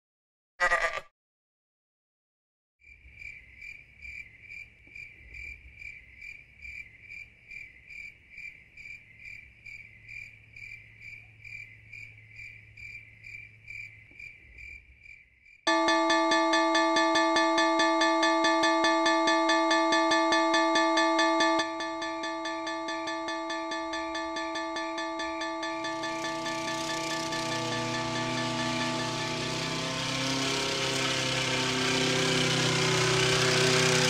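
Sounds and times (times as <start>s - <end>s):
crickets chirping: 2.8s - 15.6s
level-crossing bell ringing: 15.7s - 34.0s.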